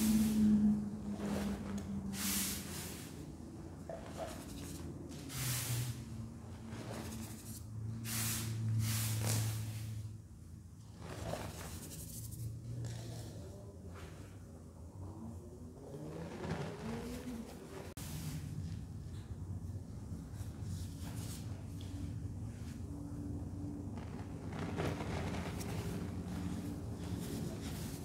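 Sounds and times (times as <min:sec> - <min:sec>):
low steady hum: 0:00.0 - 0:15.8
powder pouring hiss: 0:02.1 - 0:03.2, 0:04.0 - 0:06.1, 0:06.7 - 0:10.1.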